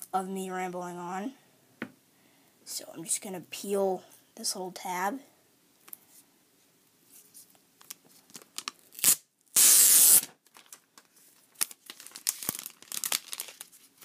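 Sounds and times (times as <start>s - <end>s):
plastic wrap ripping: 8.3s - 14.0s.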